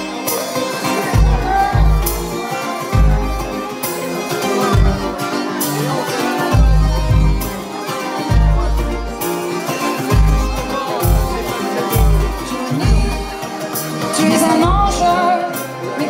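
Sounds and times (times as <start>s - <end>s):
button accordion: 0.0s - 16.0s
drums: 0.0s - 16.0s
live band playing: 0.0s - 16.0s.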